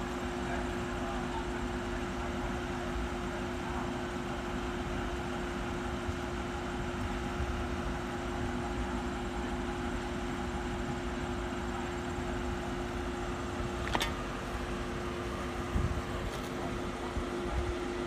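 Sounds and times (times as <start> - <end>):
steady mechanical hum: 0.0 - 18.0
sharp click: 13.8 - 14.2.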